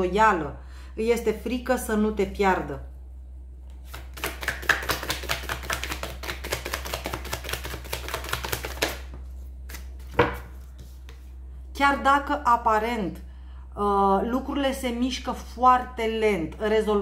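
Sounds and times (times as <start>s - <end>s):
cards being shuffled: 3.7s - 11.3s.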